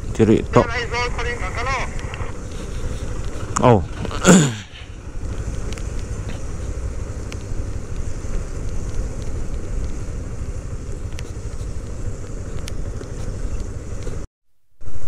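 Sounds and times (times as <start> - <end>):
motorcycle engine and road rumble: 0.0 - 14.3
wind on microphone: 1.9 - 14.2
faint ticks: 5.2 - 14.2.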